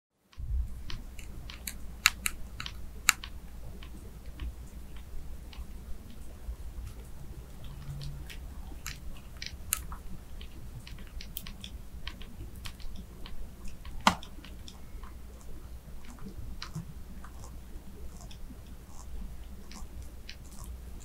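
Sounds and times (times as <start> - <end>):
larvae gnawing clicks in wood: 0.8 - 5.7, 8.7 - 14.8, 15.4 - 21.0.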